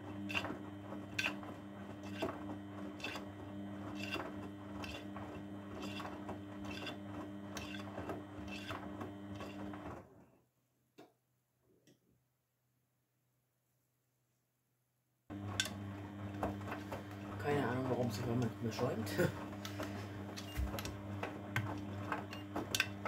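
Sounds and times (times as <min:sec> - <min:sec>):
washing machine motor humming: 0:00.0 - 0:10.2, 0:15.3 - 0:23.0.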